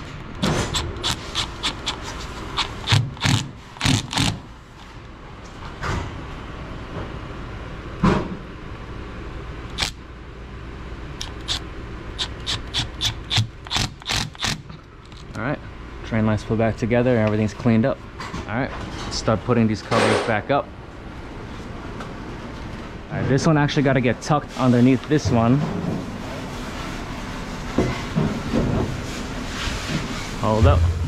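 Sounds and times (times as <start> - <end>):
metal parts clicking and scraping: 0.5 - 4.4, 12.2 - 15.4
low hum: 30.4 - 31.0.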